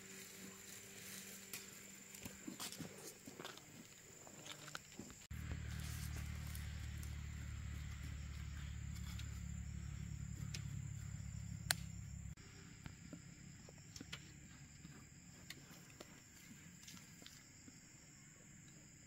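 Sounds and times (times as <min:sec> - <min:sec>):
steady low hum: 0:05.2 - 0:18.7
hoe scraping soil: 0:05.3 - 0:11.2
sharp tick: 0:11.7 - 0:11.9.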